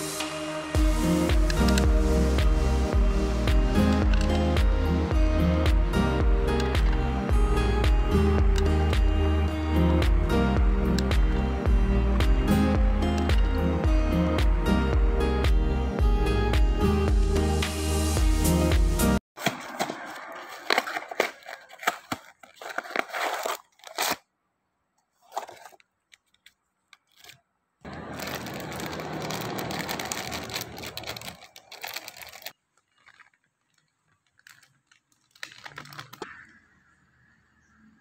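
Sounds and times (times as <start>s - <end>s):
plastic packet crinkling and tearing: 19.7s - 24.3s, 25.1s - 36.4s.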